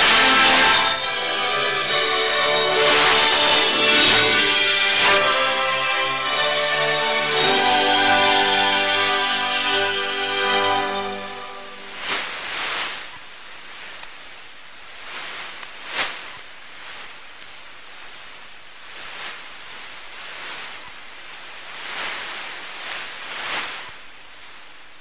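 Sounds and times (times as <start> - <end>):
radio static hiss: 0.0 - 25.0
sharp static crackle: 0.0 - 25.0
high-pitched whistle: 7.4 - 13.2, 20.4 - 21.2, 21.9 - 24.8.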